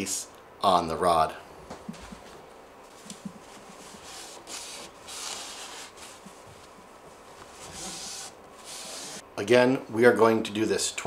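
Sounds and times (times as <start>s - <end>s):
paper towel wiping metal rod: 3.3s - 9.2s.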